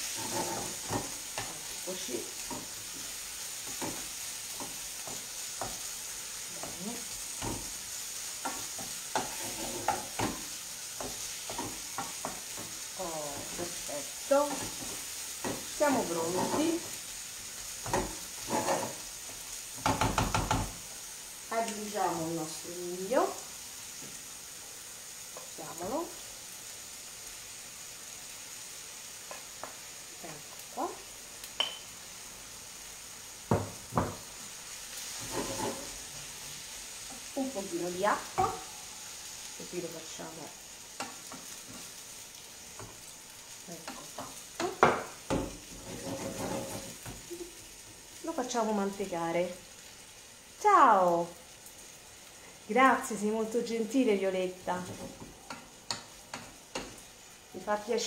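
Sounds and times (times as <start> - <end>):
utensil scraping pan: 0.0 - 1.6, 8.4 - 13.8, 14.4 - 16.9, 17.8 - 19.0, 35.0 - 36.1, 43.9 - 47.2
food sizzling in frying pan: 0.0 - 58.0
spatula knocking against pan: 19.8 - 20.8.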